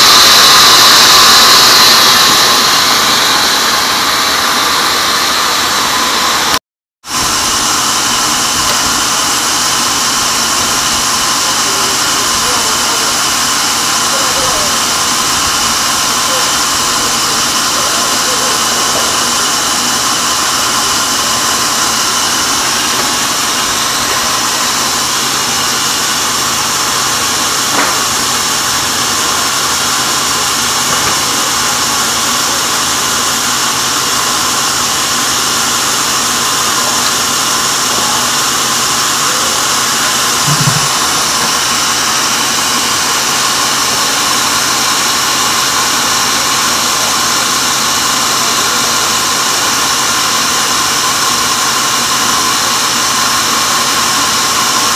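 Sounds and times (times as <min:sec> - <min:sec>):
band saw cutting log: 0:00.0 - 0:54.9
low knock: 0:40.5 - 0:41.1.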